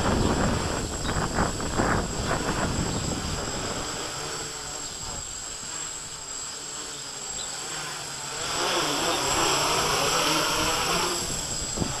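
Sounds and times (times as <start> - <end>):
wind on microphone: 0.0 - 5.5, 9.3 - 12.0
quadcopter motors humming: 0.0 - 12.0.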